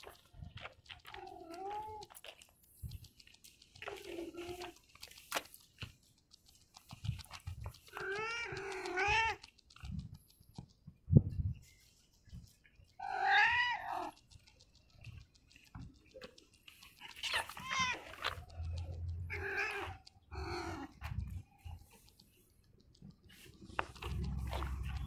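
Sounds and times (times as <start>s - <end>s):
cat meowing: 7.9s - 9.5s, 13.0s - 14.2s, 17.0s - 21.0s
footsteps on concrete: 23.4s - 25.0s.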